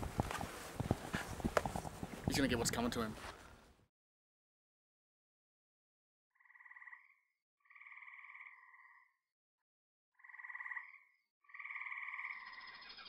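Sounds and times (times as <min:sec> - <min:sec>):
frog croaking: 0:06.4 - 0:09.2, 0:10.2 - 0:13.0.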